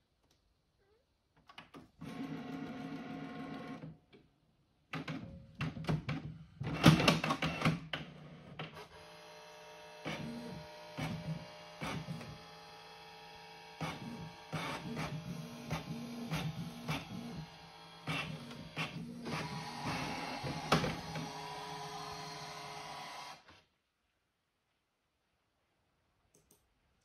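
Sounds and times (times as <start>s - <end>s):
print head whirring and clicking: 8.6s - 23.5s
printer motor whine: 8.7s - 23.5s.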